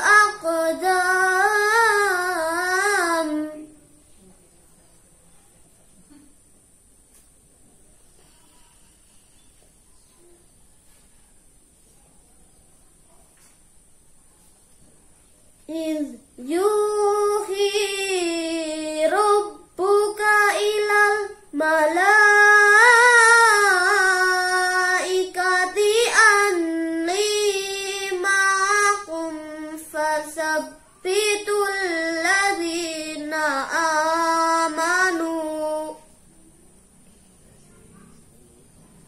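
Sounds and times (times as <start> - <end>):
boy chanting melodically: 0.0 - 3.8, 15.7 - 36.2.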